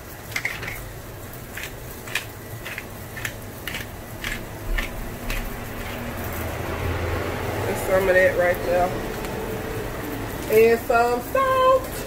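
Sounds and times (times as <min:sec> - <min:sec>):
pepper grinder cracking peppercorns: 0:00.1 - 0:06.6.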